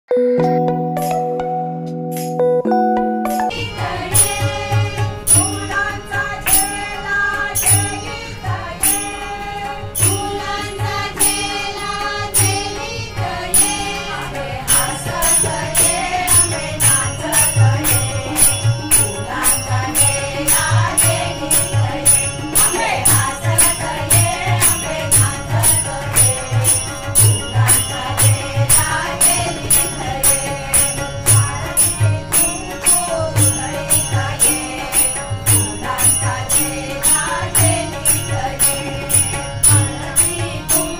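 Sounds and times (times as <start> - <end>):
harmonium chords: 0.1 - 40.9
tabla strokes: 3.4 - 40.9
group devotional singing: 3.5 - 40.9
small jingling cymbals: 3.5 - 40.9.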